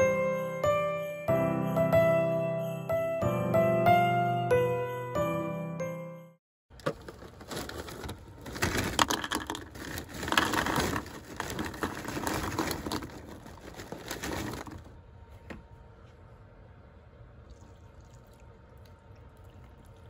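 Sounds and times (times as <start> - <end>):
plastic bag crinkling: 6.8 - 15.0
cereal rattling into bowl: 6.9 - 14.9.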